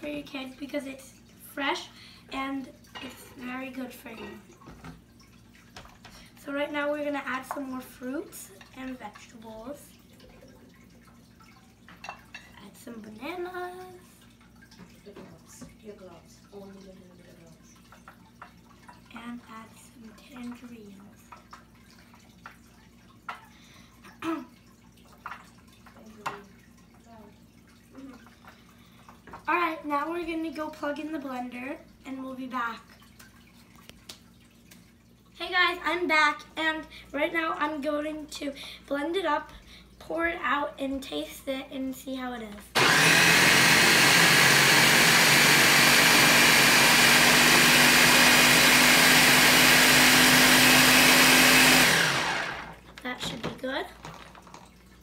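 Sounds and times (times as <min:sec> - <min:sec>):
blender motor running: 0:42.8 - 0:52.9
contents churning in blender: 0:42.8 - 0:52.9.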